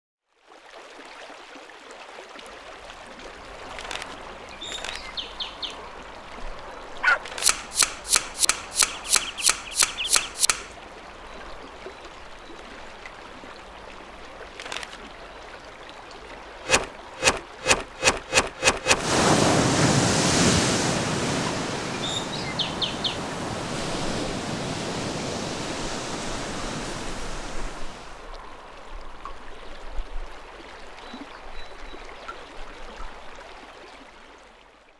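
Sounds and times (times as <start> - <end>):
pond and stream ambience: 0.2 - 34.9
faint bird chirps: 8.0 - 10.7, 22.0 - 23.2
tail slapping mud: 16.7 - 28.0.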